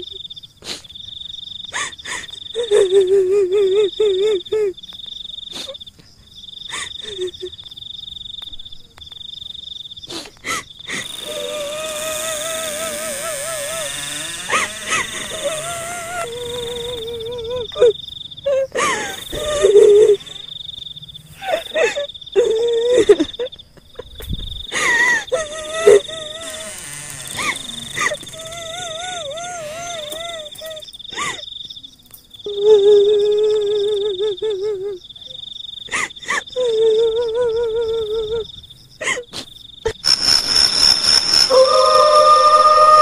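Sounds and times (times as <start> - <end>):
insect trill: 0.0 - 43.0
wavering tone over hiss: 40.0 - 43.0.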